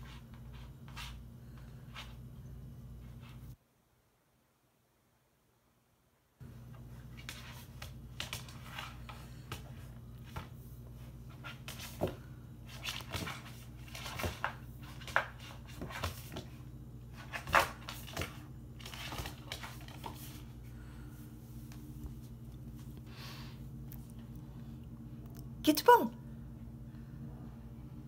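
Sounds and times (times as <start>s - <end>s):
steady low hum: 6.4s - 28.0s.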